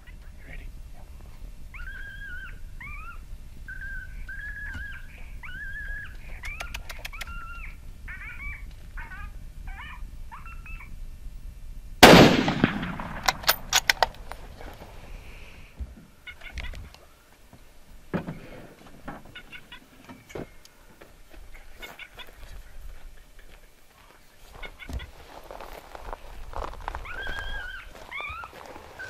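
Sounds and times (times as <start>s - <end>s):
jackal calls and yips: 1.7s - 11.0s, 16.2s - 17.1s, 19.3s - 20.6s, 21.5s - 22.8s, 26.8s - 29.0s
sharp clicks: 6.4s - 7.4s
rifle shot with echo: 12.0s - 14.3s.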